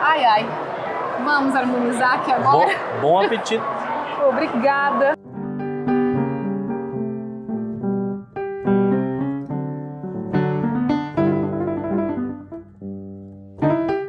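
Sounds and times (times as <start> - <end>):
piano music: 5.2 - 14.0.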